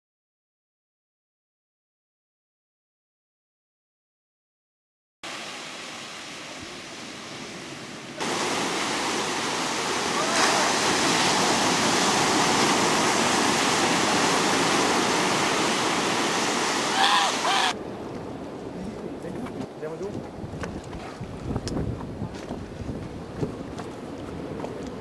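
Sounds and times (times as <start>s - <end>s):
waves breaking on beach: 5.2s - 19.5s.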